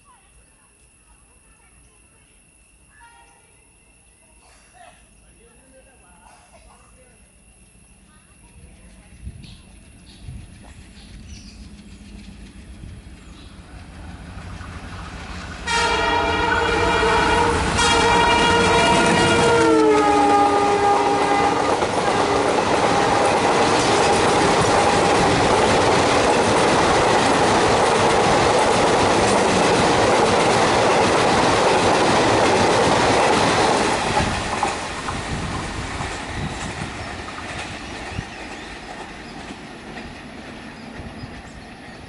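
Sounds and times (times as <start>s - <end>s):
locomotive horn: 15.6s - 25.0s
train wheels clattering over rail joints: 21.3s - 42.0s.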